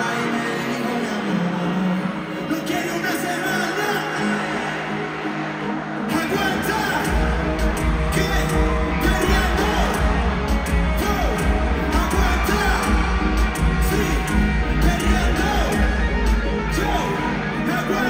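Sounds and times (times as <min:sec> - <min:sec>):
person singing: 0:00.0 - 0:05.2, 0:06.0 - 0:18.0
crowd yelling: 0:00.0 - 0:18.0
reggaeton music over pa: 0:00.0 - 0:18.0
heavy bass beat: 0:07.0 - 0:17.1.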